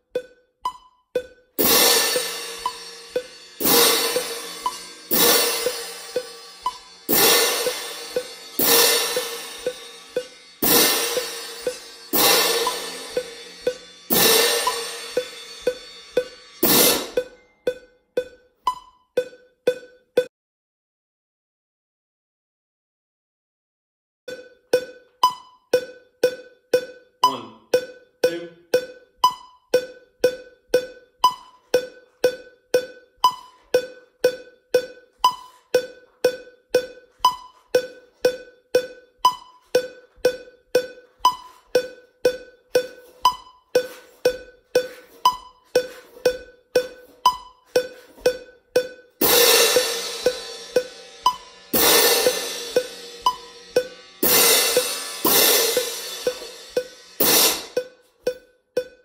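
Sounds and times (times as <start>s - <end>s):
metronome clicking: 0.0s - 20.3s, 24.3s - 59.0s
crash cymbals: 1.6s - 17.5s, 49.2s - 57.8s.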